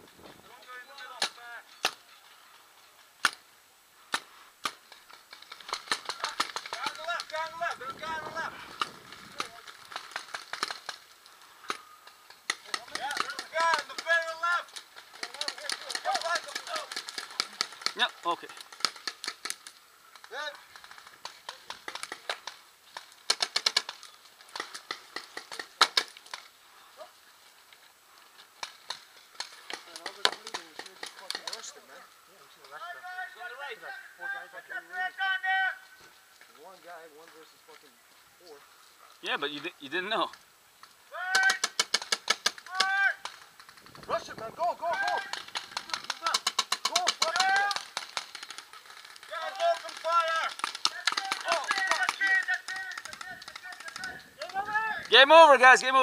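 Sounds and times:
paintball markers firing: 1.2s - 2.1s, 3.2s - 3.4s, 4.1s - 26.5s, 28.6s - 31.7s, 41.3s - 44.2s, 44.9s - 55.3s.

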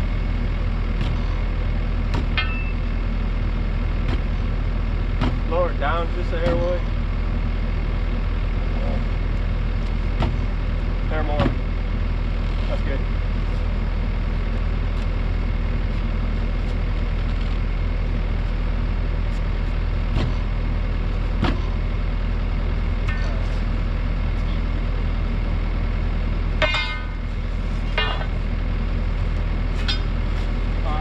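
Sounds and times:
mini excavator engine idling: 0.0s - 31.0s
metal striking metal: 2.1s - 3.0s, 26.6s - 27.2s
sharp metallic clanks: 2.1s - 3.0s, 23.0s - 23.5s, 26.6s - 27.2s, 27.9s - 28.4s.

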